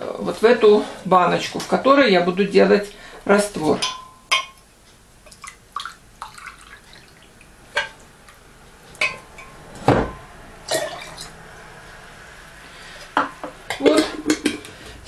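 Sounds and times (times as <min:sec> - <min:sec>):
liquid trickling: 0:05.2 - 0:08.4.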